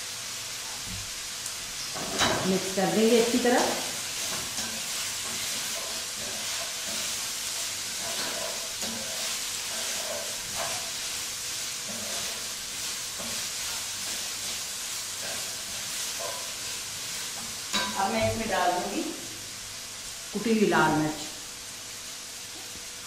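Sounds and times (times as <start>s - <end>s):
food sizzling in a hot pan: 0.0s - 23.0s
wooden spatula scraping a pan: 1.8s - 18.7s.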